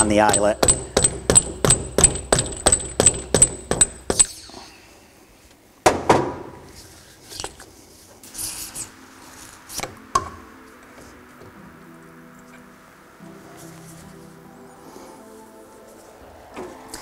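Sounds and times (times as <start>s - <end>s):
rubber mallet tapping metal: 0.0s - 4.3s.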